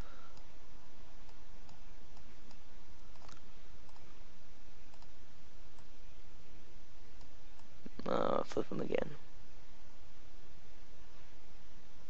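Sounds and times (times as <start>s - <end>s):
background hiss: 0.0s - 12.0s
computer mouse clicks: 1.2s - 4.2s, 4.9s - 5.9s.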